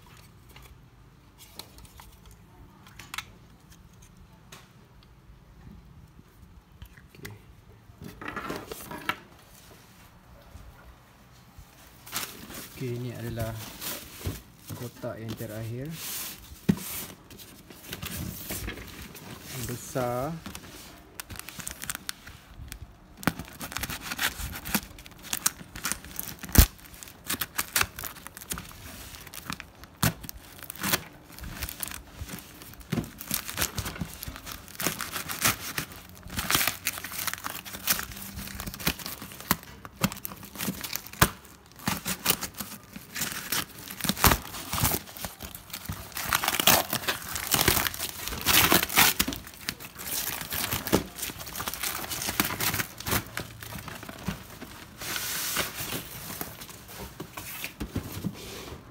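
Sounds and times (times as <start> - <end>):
paper and bubble wrap crumpling: 11.9 - 58.3.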